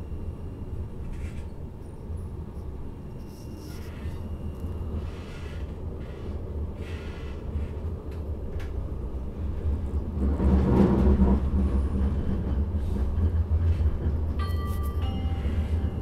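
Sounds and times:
tram interior rumble: 0.0 - 16.0
two-note electronic chime: 14.4 - 16.0.

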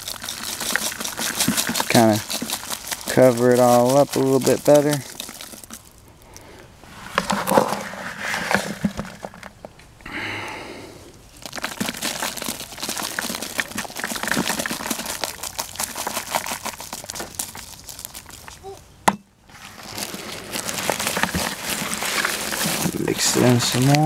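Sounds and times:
dirt crackling and rustling: 0.0 - 9.9, 11.2 - 24.0
smooth rush of dirt: 19.5 - 24.0.

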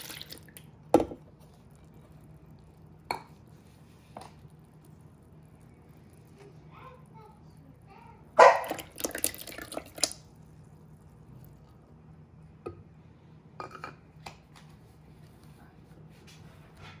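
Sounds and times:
cheese splashing into milk: 0.0 - 7.1, 8.5 - 12.0
small drips and taps: 8.6 - 10.3.

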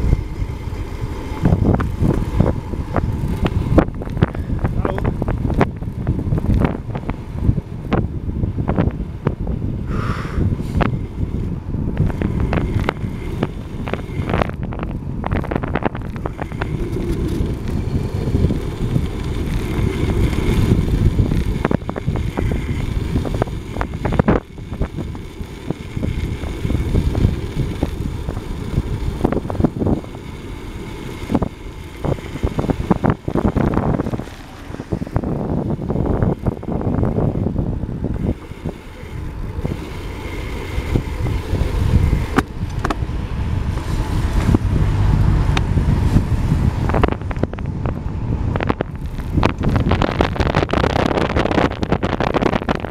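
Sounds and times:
wind rushing over microphone: 0.0 - 52.9
bike knocks and rattles: 1.3 - 7.2, 40.8 - 43.1.

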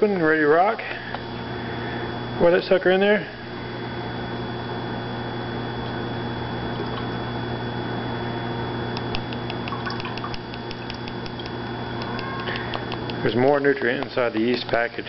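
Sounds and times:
steady background hum: 0.0 - 15.0
liquid dripping: 6.8 - 7.2, 9.0 - 13.3
liquid pouring into a glass flask: 9.5 - 11.6.

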